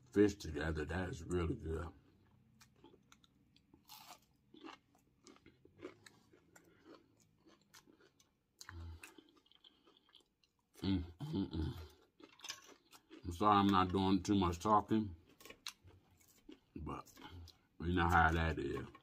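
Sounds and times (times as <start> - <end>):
crunchy chewing: 2.0 - 19.0.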